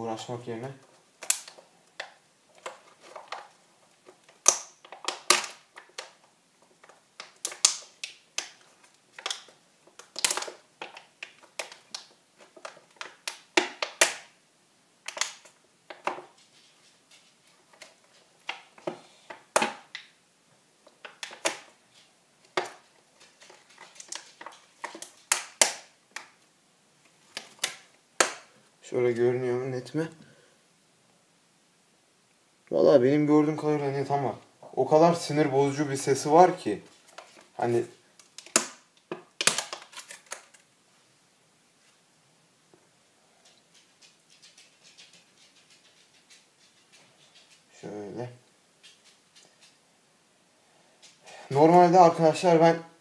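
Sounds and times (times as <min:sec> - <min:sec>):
plastic tub crackling and popping: 0:00.1 - 0:14.4, 0:15.0 - 0:20.2, 0:20.8 - 0:29.2, 0:34.0 - 0:40.8.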